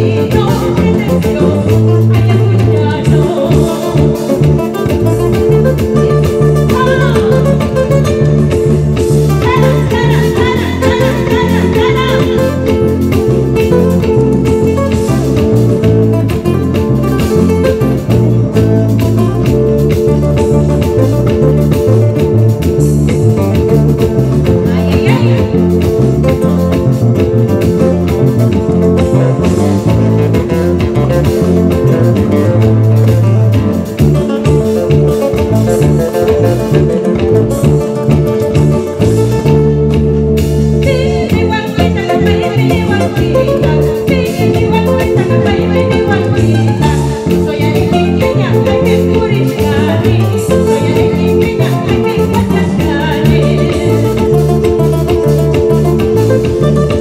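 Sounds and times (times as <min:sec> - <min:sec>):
woman singing: 0:00.0 - 0:19.2, 0:24.4 - 0:26.6, 0:40.8 - 0:56.1
plucked acoustic guitars: 0:00.0 - 0:57.0
steady bass line: 0:00.0 - 0:57.0.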